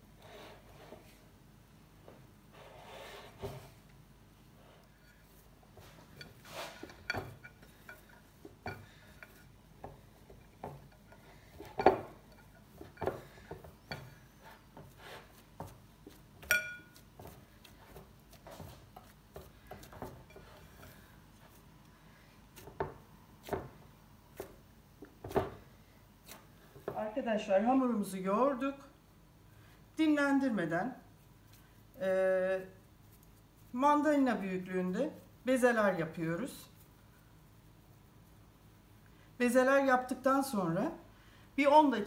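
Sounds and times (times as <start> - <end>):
hands kneading dough: 2.5 - 27.1, 30.2 - 40.5
ringing glass clink: 16.5 - 16.9.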